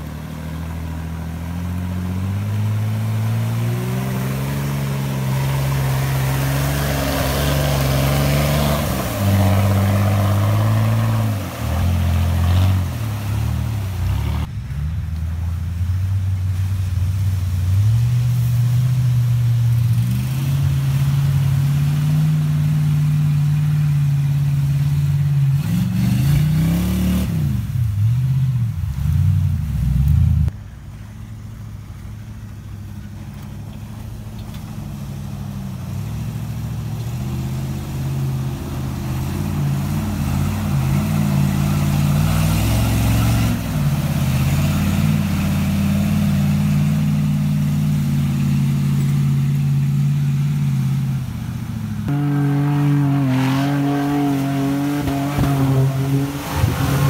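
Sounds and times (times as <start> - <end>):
mud and water splashing: 0.0 - 57.0
truck engines revving: 0.0 - 57.0.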